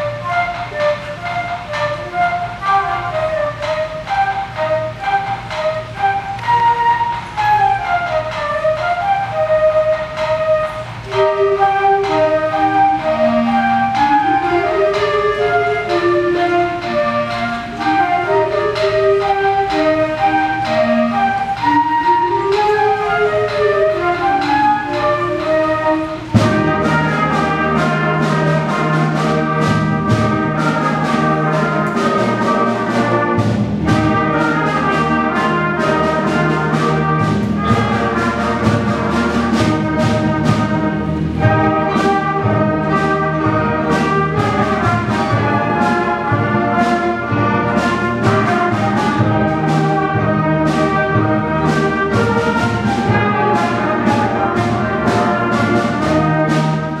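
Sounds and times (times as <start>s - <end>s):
concert band playing: 0.0s - 57.0s
percussion beat: 0.0s - 57.0s
soft woodwind line: 0.0s - 57.0s.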